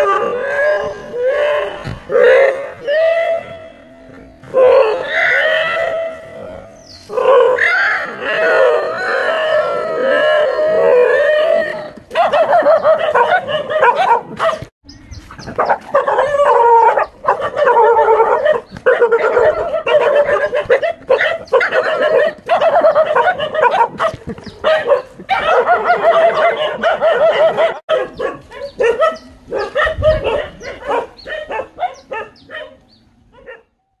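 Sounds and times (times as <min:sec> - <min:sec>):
dog barking and whining: 0:10.8 - 0:14.7, 0:15.4 - 0:33.7.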